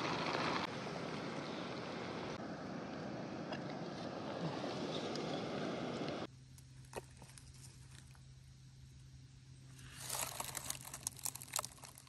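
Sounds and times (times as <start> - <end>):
faint low hum: 0.7 - 12.0.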